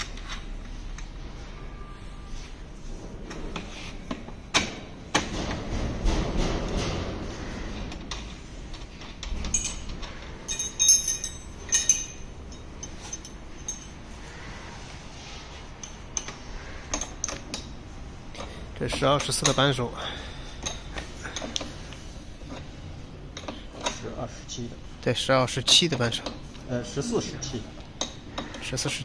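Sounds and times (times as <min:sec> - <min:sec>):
light metallic clinks: 0:09.4 - 0:14.5.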